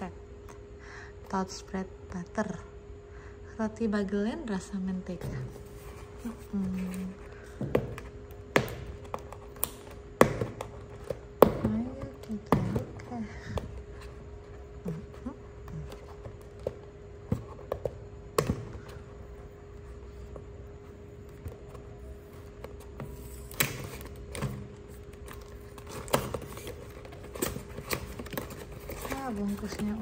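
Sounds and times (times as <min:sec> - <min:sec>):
taps and knocks on cardboard: 0:07.6 - 0:13.8.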